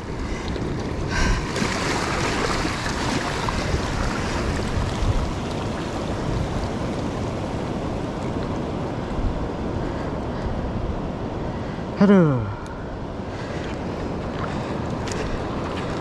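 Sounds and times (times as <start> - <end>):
waves lapping over rocks: 0.0 - 10.1, 13.4 - 16.0
wind rumbling on microphone: 0.0 - 12.0, 12.7 - 16.0.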